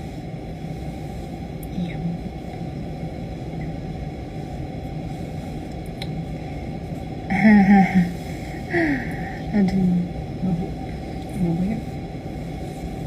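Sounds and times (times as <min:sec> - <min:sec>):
low room background noise: 0:00.0 - 0:13.0
young woman's voice: 0:01.6 - 0:02.4, 0:07.3 - 0:11.9.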